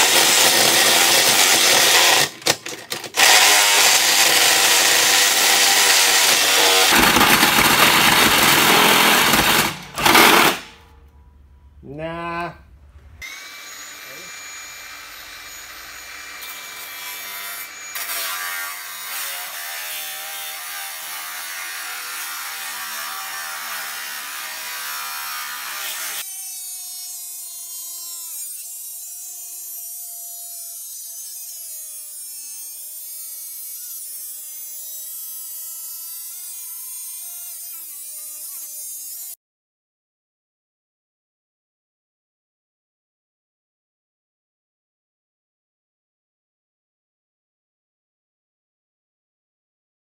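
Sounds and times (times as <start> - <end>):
angle grinder cutting steel: 0.0 - 10.7, 13.2 - 39.4.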